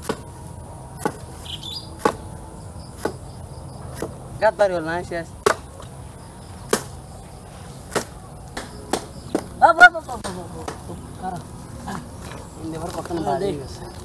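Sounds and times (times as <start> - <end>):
wooden club knocking bamboo: 5.4 - 5.7.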